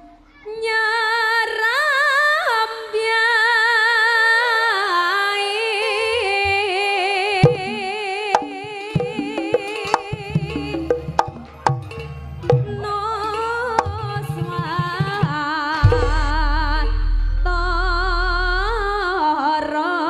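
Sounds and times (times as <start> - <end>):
drum strokes: 0.0 - 0.5, 7.4 - 19.4
woman singing through pa: 0.4 - 11.7, 12.4 - 20.0.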